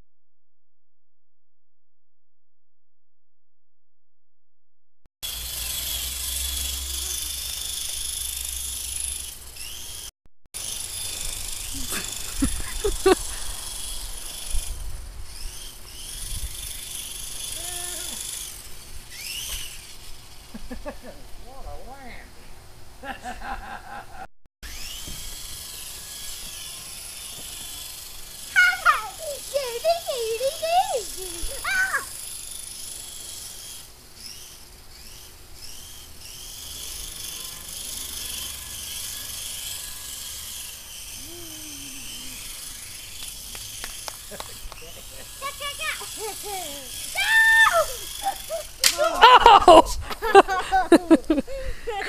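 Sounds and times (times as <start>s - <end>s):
toy helicopter motor whining: 5.2s - 20.9s, 24.6s - 49.4s
constant hiss: 25.2s - 52.0s.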